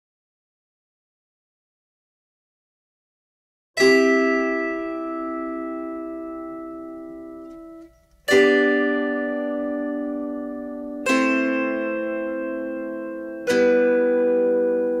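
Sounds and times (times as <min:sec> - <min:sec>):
plucked zither chords: 0:03.8 - 0:15.0.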